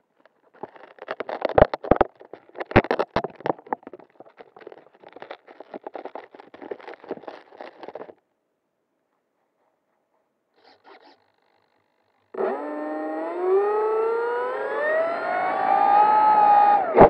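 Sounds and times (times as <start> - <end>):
scratching and clicking: 0.0 - 8.2, 9.1 - 11.6.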